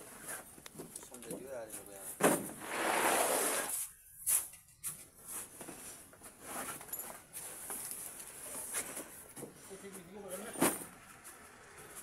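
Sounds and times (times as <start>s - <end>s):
sacks thudding: 2.2s - 2.8s.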